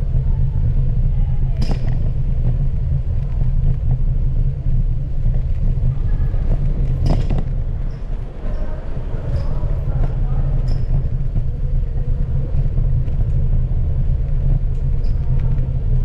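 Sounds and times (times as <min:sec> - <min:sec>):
bicycle tyres on asphalt: 0:00.0 - 0:16.0
wind on microphone: 0:00.0 - 0:16.0.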